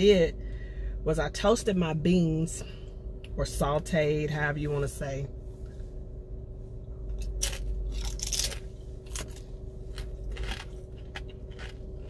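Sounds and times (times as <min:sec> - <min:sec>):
chip crunching and chewing: 0:07.1 - 0:12.0.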